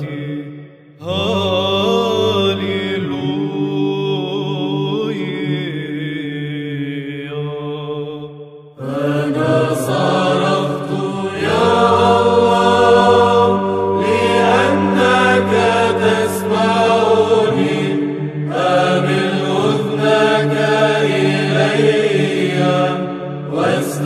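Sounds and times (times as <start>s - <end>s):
choir singing chant melody: 0.0s - 24.0s
held low vocal drone: 8.8s - 24.0s.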